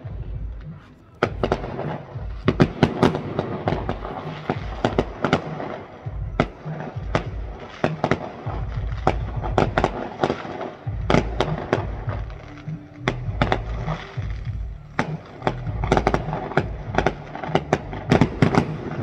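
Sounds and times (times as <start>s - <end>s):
fireworks bangs and crackles: 0.0s - 19.0s
low rumble: 8.5s - 10.2s, 10.9s - 19.0s.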